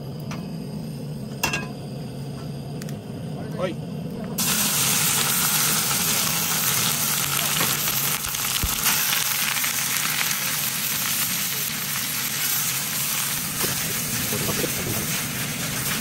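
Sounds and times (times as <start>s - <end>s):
egg sizzling in pan: 4.4s - 16.0s.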